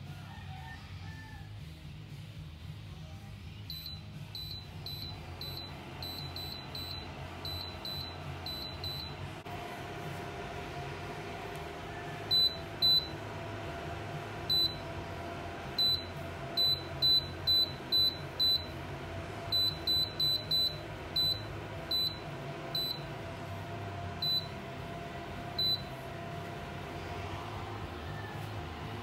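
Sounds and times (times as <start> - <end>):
steady low hum: 2.0 - 29.0
stove control panel beeping: 3.7 - 9.3, 12.3 - 13.2, 14.4 - 15.0, 15.8 - 18.8, 19.4 - 23.2, 24.2 - 24.7, 25.5 - 26.0.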